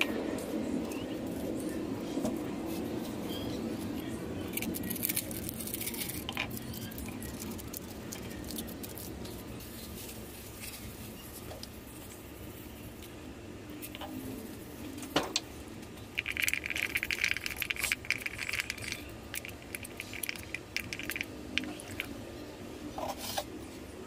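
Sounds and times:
low background noise: 0.0s - 24.0s
hands handling plastic pieces: 16.2s - 22.1s.

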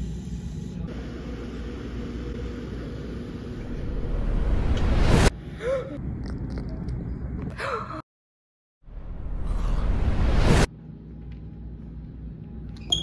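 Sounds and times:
rumbling rushing noise: 3.6s - 5.3s.

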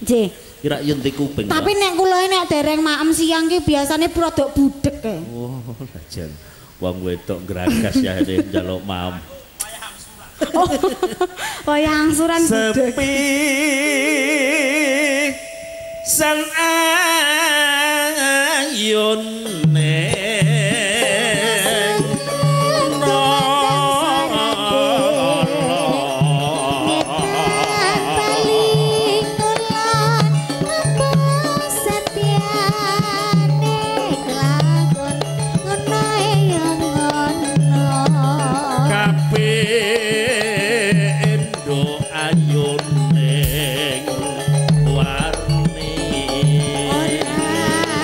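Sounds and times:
woman singing: 10.5s - 15.4s, 20.4s - 48.0s
live band accompaniment: 19.3s - 48.0s
low bass beat: 43.4s - 48.0s
low drum strokes: 43.4s - 48.0s.

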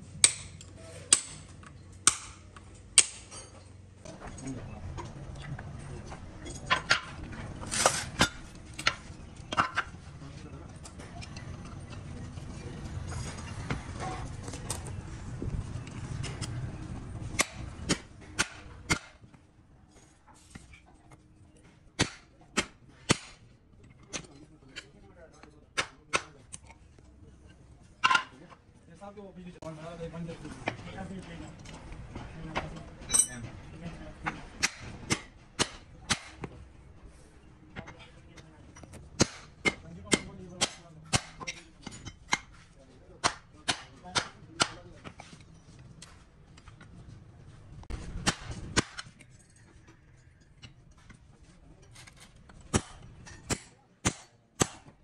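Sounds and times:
hammer striking steel: 0.2s - 3.6s, 22.0s - 23.5s, 33.1s - 33.5s, 34.6s - 36.5s, 39.2s - 42.6s, 43.2s - 44.8s, 52.7s - 55.0s
rough scraping and handling: 7.2s - 10.4s.

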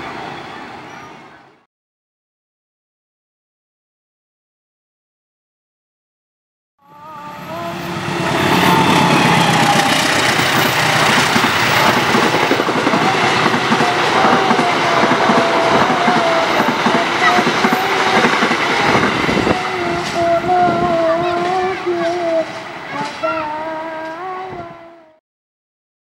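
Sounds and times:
train coaches rolling past: 0.0s - 1.7s, 6.9s - 24.9s
wheels clattering over rail joints: 8.4s - 23.3s.

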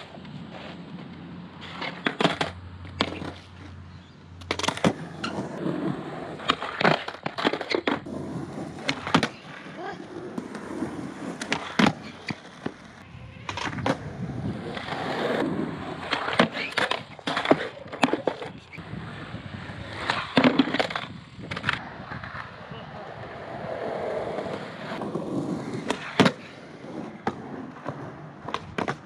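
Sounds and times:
skateboard wheels rolling: 0.0s - 29.0s
skateboard pops and clacks: 1.6s - 3.6s, 4.4s - 5.7s, 6.4s - 9.6s, 10.3s - 14.0s, 14.7s - 18.8s, 20.0s - 22.5s, 24.4s - 29.0s.

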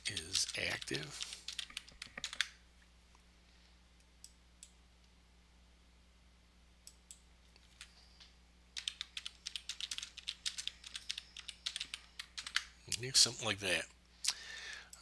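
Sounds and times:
faint electrical hum: 0.0s - 15.0s
keyboard typing: 0.1s - 2.6s, 8.8s - 13.1s
computer mouse and keyboard clicks: 1.2s - 2.5s.

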